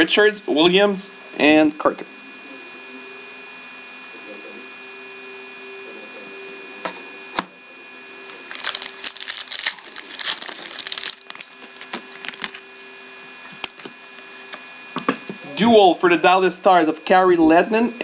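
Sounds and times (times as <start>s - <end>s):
cards sliding and crinkling: 8.2s - 12.6s.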